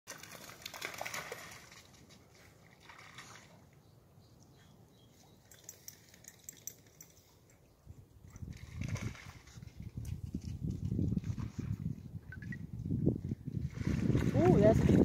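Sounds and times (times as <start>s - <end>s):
dog splashing through water: 0.1s - 3.7s, 8.4s - 9.9s.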